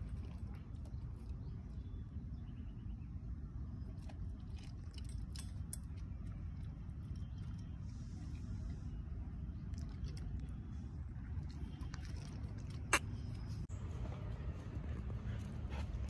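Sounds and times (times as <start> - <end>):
dog crunching dry kibble: 0.0 - 1.8, 3.9 - 7.5, 9.6 - 10.6, 11.2 - 13.6
steady low rumble: 0.0 - 16.0.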